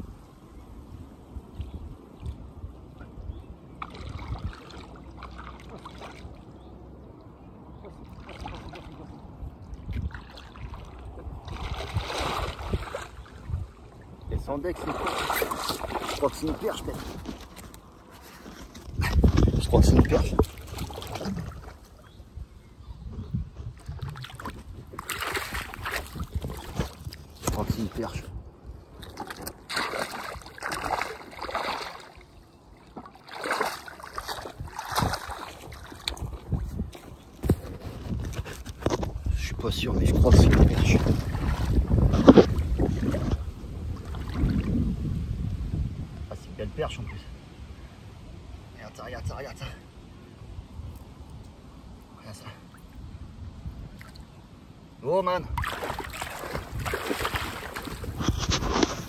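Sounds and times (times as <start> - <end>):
wind rumble on microphone: 0.0 - 5.2, 6.2 - 31.2, 34.1 - 48.6, 53.0 - 54.5, 55.4 - 59.0
waders splashing through water: 3.7 - 22.2, 23.7 - 28.1, 28.9 - 37.7, 40.0 - 44.9, 55.5 - 59.0.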